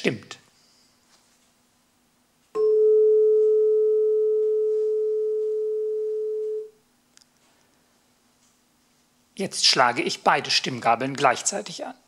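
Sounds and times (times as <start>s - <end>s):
tuning fork ringing: 2.5s - 6.8s.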